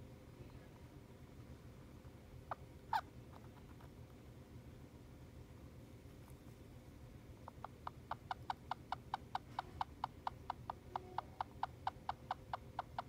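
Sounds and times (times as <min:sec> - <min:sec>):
hamster squeaking: 0:02.4 - 0:04.0, 0:07.4 - 0:13.0.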